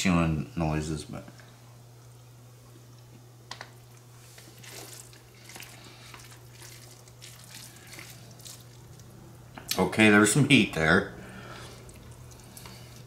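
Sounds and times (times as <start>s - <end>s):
steady low hum: 0.0s - 13.0s
man chewing noodles: 3.9s - 9.2s, 11.5s - 13.0s.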